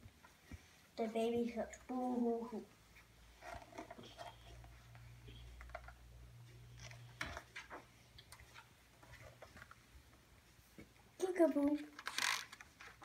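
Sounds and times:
paper page turning: 11.9 - 13.0.

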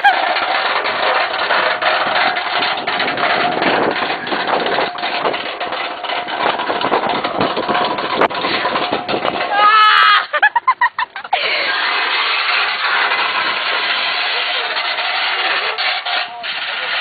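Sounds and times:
snow shovel scraping asphalt: 11.4 - 17.0.

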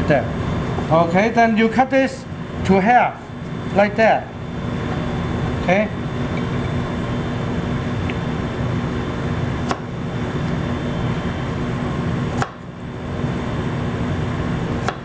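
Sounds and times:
ventilation hum: 0.0 - 15.0.

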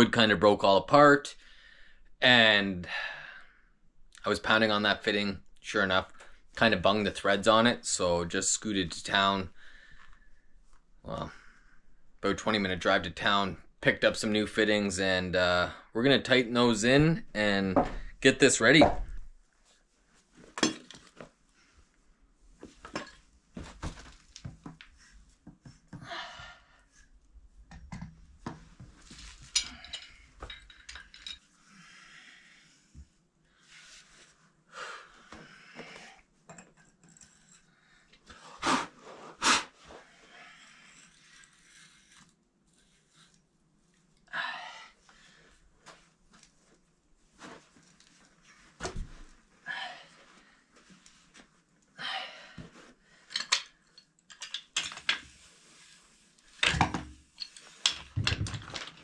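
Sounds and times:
metal fittings clinking: 29.4 - 31.4.

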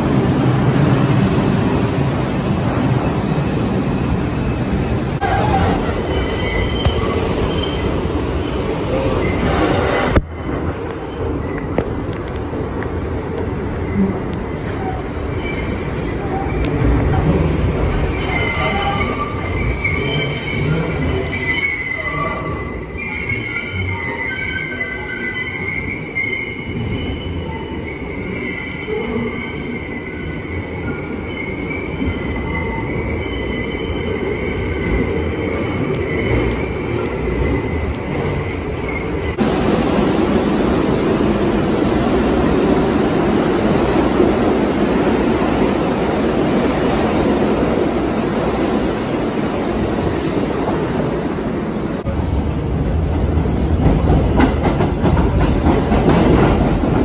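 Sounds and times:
subway train wheels rumbling: 0.0 - 57.0
train low rumble: 34.4 - 57.0.

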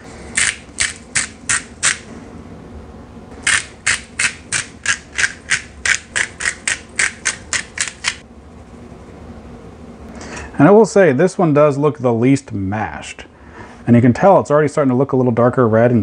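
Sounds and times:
pepper grinder crunching: 0.3 - 2.1, 3.4 - 8.2.

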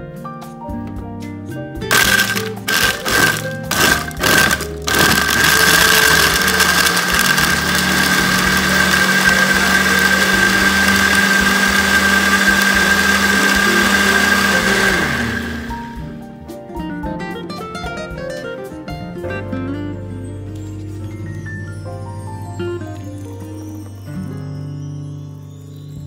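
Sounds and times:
blender motor running: 1.9 - 16.0.

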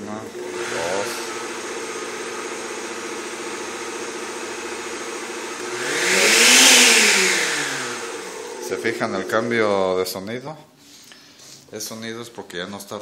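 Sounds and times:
blender motor whining: 0.0 - 10.0.

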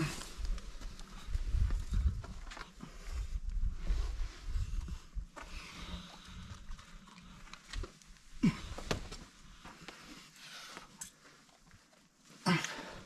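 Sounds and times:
falling grunt: 8.4 - 9.0, 12.4 - 13.0.

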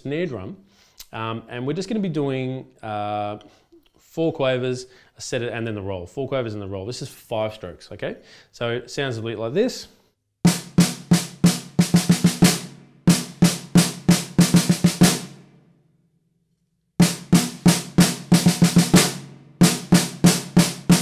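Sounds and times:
snare drum strokes and rolls: 10.5 - 15.5, 17.0 - 21.0.

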